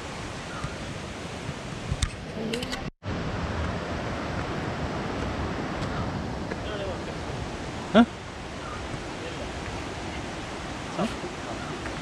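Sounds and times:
flowing water rushing: 3.1s - 12.0s.

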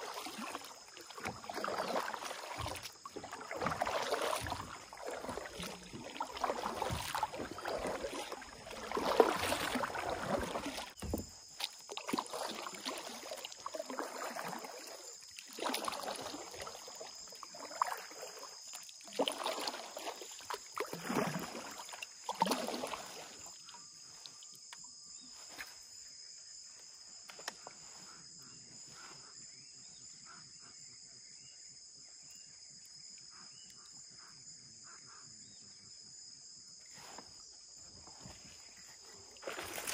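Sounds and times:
paddle strokes splashing in water: 0.0s - 24.7s, 38.1s - 39.9s
high-pitched insect chorus: 0.0s - 39.9s.

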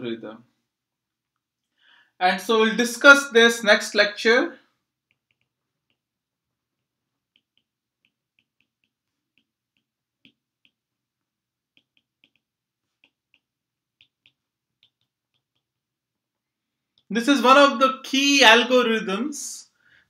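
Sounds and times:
stylus tapping tablet screen: 5.0s - 16.3s.

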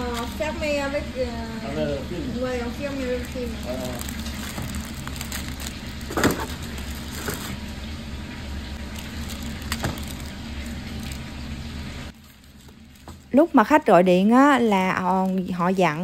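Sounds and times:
paper and foil crinkling: 0.0s - 0.6s, 2.6s - 7.6s, 8.8s - 11.4s, 12.1s - 16.0s
steady low hum: 0.0s - 16.0s.

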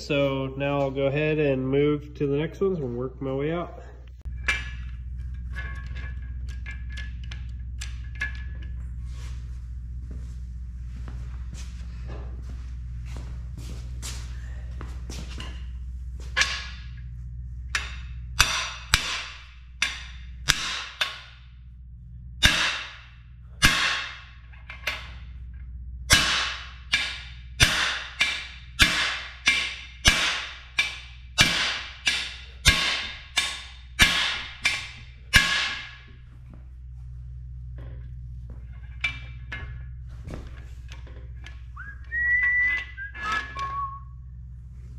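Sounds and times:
hammer striking metal bar: 16.4s - 16.9s, 17.7s - 21.4s, 22.4s - 25.1s, 26.1s - 36.1s.

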